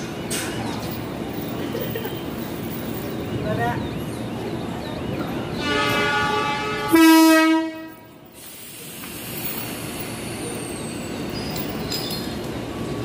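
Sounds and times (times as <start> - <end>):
train horn: 5.6 - 8.1
steady hiss: 8.3 - 10.4.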